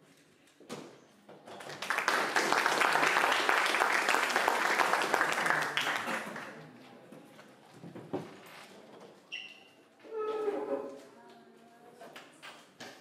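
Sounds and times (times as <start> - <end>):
audience applauding: 1.6 - 6.6.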